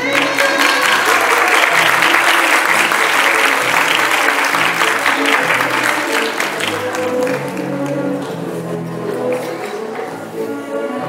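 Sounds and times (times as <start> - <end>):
audience applause: 0.0 - 8.0
background music: 0.0 - 11.0.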